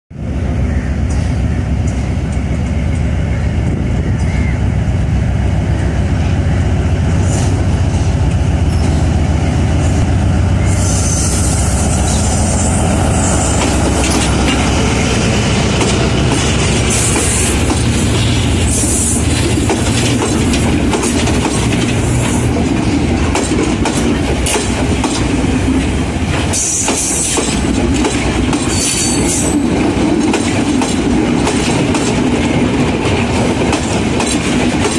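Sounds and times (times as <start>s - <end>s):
diesel locomotive engine drone: 0.1s - 34.9s
high-pitched wheel squeals: 10.6s - 13.6s
train wheels clattering over rail joints: 12.0s - 34.9s.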